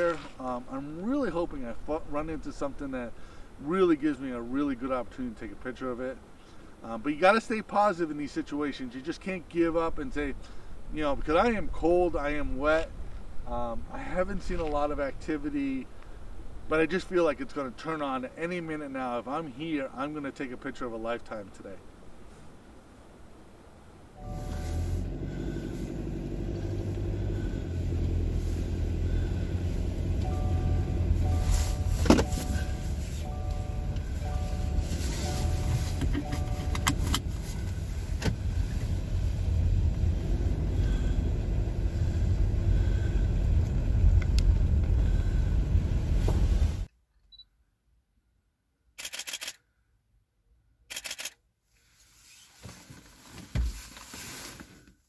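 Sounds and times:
rustling: 0:00.0 - 0:01.2, 0:24.3 - 0:40.0, 0:51.8 - 0:55.0
car engine and road rumble: 0:00.0 - 0:46.9, 0:50.9 - 0:55.0
dull thump: 0:31.9 - 0:32.6, 0:46.2 - 0:46.5
camera shutter bursts: 0:49.0 - 0:49.6, 0:50.9 - 0:51.4.

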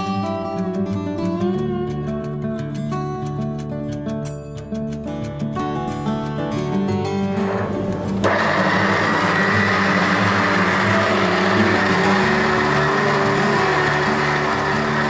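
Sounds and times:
mixer grinder motor whining: 0:07.6 - 0:15.0.

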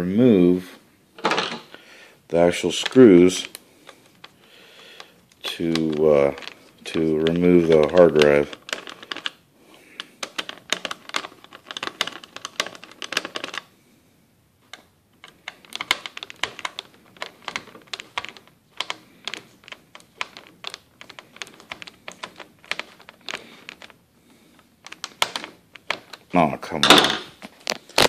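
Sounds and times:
small clicks on plastic laptop: 0:14.6 - 0:24.0.

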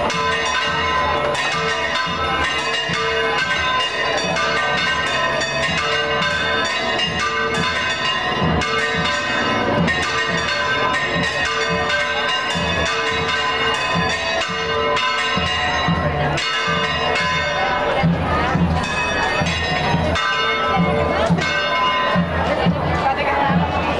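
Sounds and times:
church bells pealing: 0:00.0 - 0:23.9
crowd chatter: 0:00.0 - 0:23.9.

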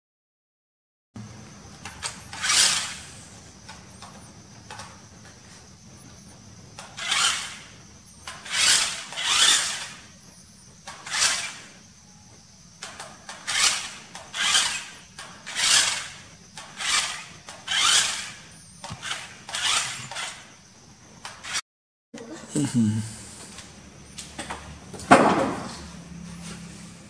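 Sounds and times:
toy car motor whirring: 0:01.8 - 0:04.9, 0:06.8 - 0:10.1, 0:10.8 - 0:11.7, 0:12.8 - 0:20.5, 0:21.2 - 0:21.6.

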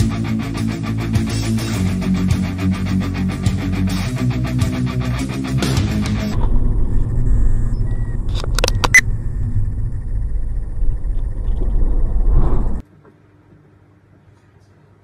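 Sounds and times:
car road and engine rumble: 0:06.3 - 0:12.8.

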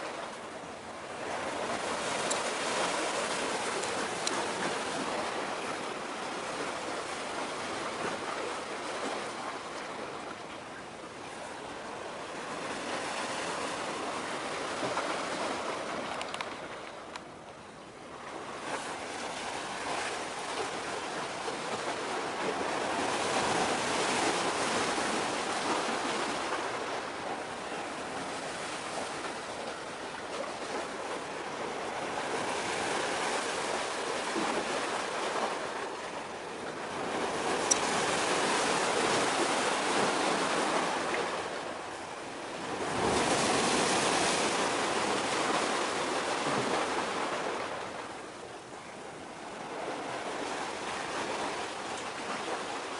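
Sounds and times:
small waves washing in: 0:18.1 - 0:52.9.

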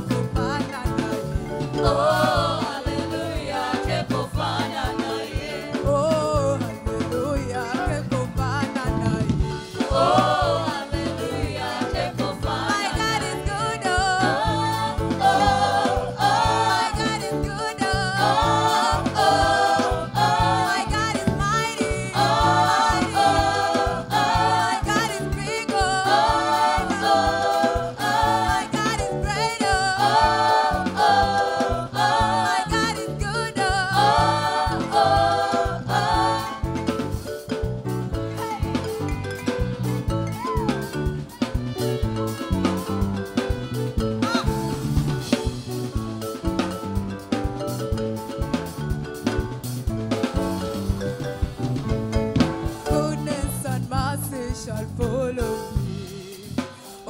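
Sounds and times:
band playing: 0:00.0 - 0:57.0
drum kit beat: 0:00.0 - 0:57.0
singers singing together: 0:01.1 - 0:06.8, 0:07.4 - 0:37.2.

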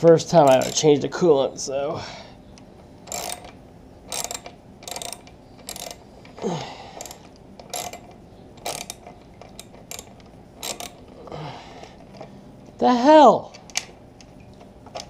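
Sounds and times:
socket ratchet clicking: 0:00.4 - 0:00.9, 0:02.6 - 0:06.0, 0:07.0 - 0:11.2.

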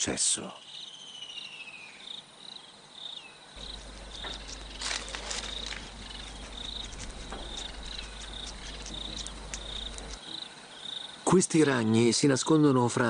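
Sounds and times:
cricket chirping: 0:00.5 - 0:11.2
low steady hum: 0:03.6 - 0:10.2
sharp clicks and crackles: 0:03.6 - 0:10.2.

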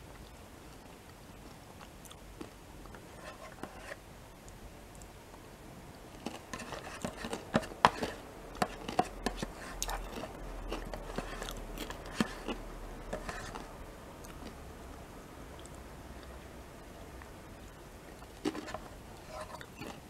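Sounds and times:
crunchy chewing: 0:06.1 - 0:14.6, 0:18.2 - 0:20.0.

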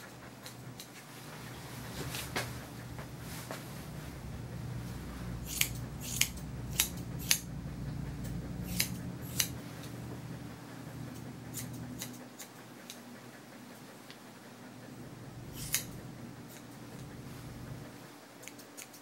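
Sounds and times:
grooming shears snipping hair: 0:00.0 - 0:04.3, 0:05.0 - 0:19.0.

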